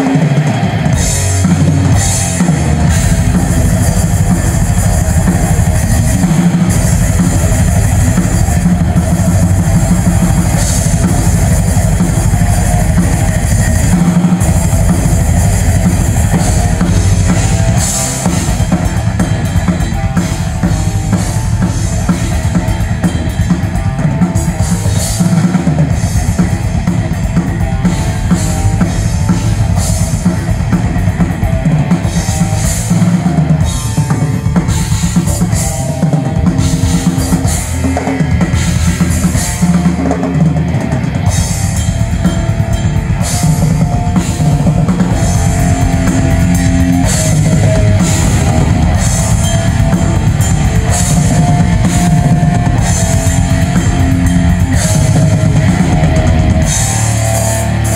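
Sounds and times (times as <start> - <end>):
drum kit rock groove: 0.0 - 57.9
held pitched backing notes: 0.0 - 57.9
cymbal crashes: 41.2 - 57.9.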